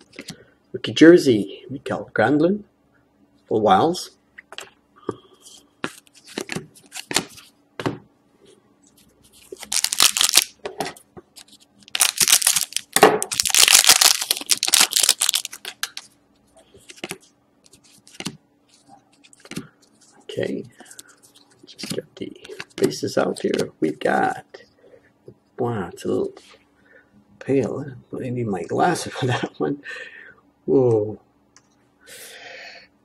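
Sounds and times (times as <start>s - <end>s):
cards tapping and clicking: 5.8s - 8.0s, 16.8s - 18.4s, 19.4s - 19.7s, 21.8s - 23.7s
wrapper crinkling: 9.4s - 10.6s, 11.4s - 16.1s
scissors cutting foil wrapper: 11.9s - 16.0s.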